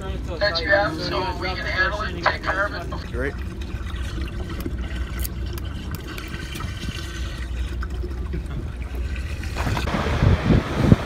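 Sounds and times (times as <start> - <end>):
boat engine drone: 0.0 - 11.0
water rushing past hull: 0.5 - 11.0
wind buffeting microphone: 3.0 - 11.0.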